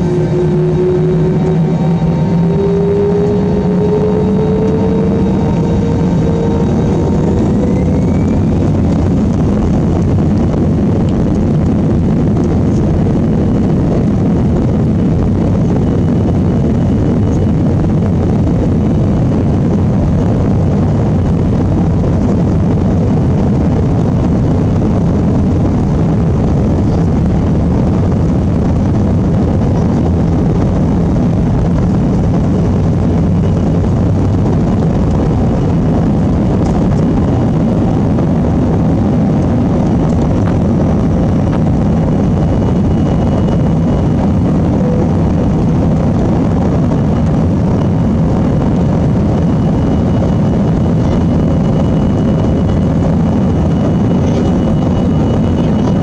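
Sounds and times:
jet engines spooling up: 0.0 - 56.0.

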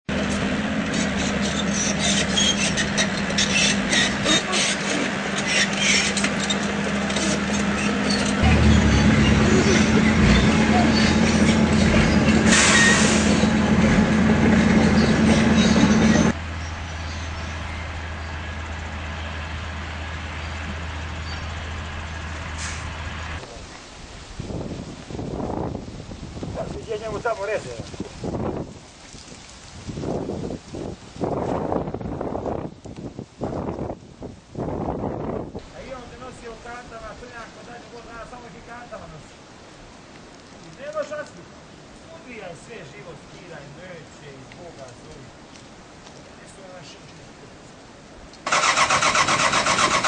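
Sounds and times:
tracks clanking and crunching stone: 0.1 - 16.4
bulldozer diesel engine running: 0.1 - 23.4
deep rumble: 0.2 - 23.4.

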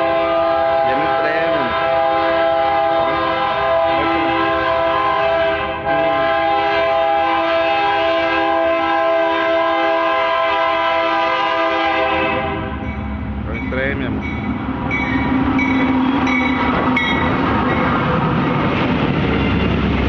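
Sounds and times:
locomotive air horn: 0.0 - 12.8.

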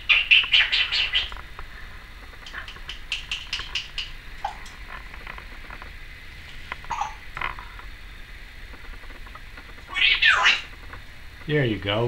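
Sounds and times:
parrot clicking chirps: 0.1 - 1.3, 2.4 - 4.8, 6.9 - 7.2, 9.9 - 10.7.

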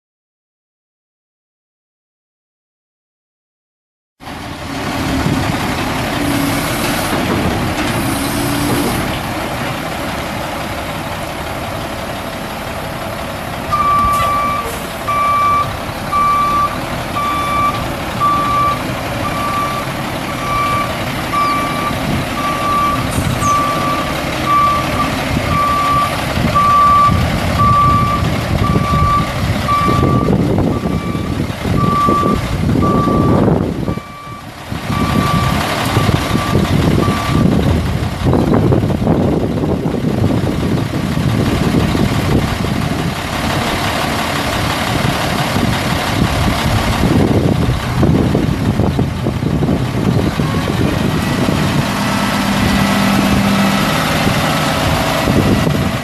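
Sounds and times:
dump truck diesel engine running: 4.2 - 56.0
backup alarm beeping: 13.7 - 35.6.

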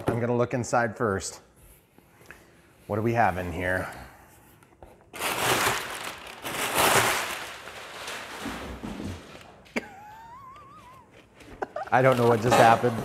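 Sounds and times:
packing paper rustling: 5.1 - 9.6, 11.2 - 13.0.

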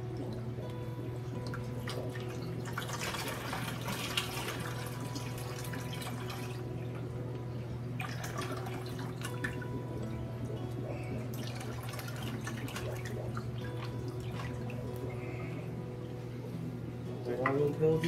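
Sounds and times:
water pouring into bucket: 1.8 - 6.7, 8.0 - 9.7, 11.3 - 14.9.

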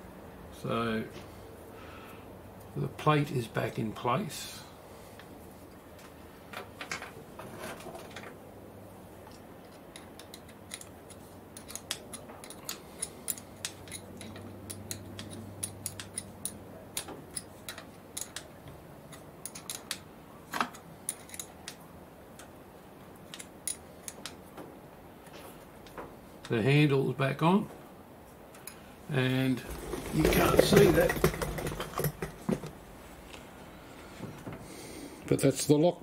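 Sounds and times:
metallic clicks of hand tools: 9.3 - 18.5, 19.1 - 20.1, 20.7 - 21.8, 23.3 - 24.4.

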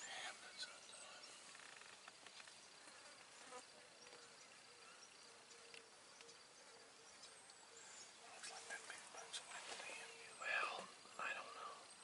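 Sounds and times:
faint insect buzz: 0.0 - 12.0.

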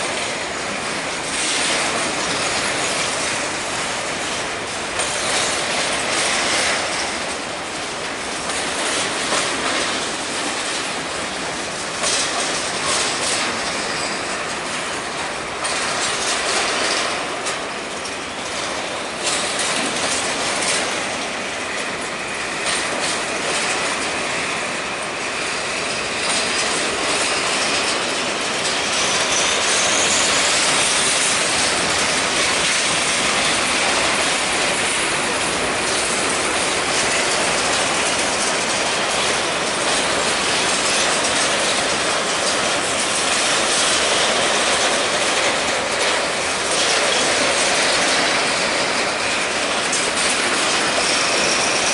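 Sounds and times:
train wheels clanking on rails: 0.0 - 51.9
thin wheel squeal: 13.8 - 14.4, 29.0 - 30.7, 51.0 - 51.9.

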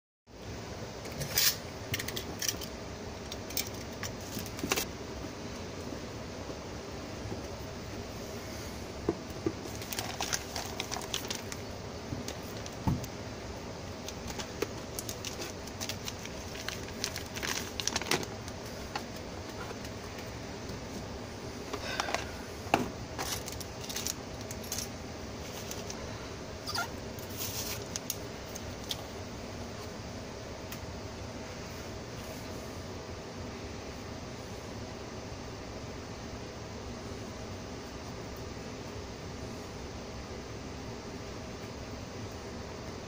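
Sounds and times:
steady background hum: 0.3 - 43.0
plastic bag crinkling: 9.6 - 12.8, 14.0 - 19.6, 23.2 - 26.0.

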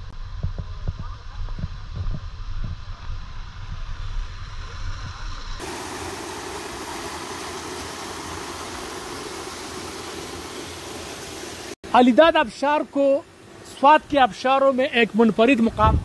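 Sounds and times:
waterfall splashing into pool: 5.6 - 11.8.

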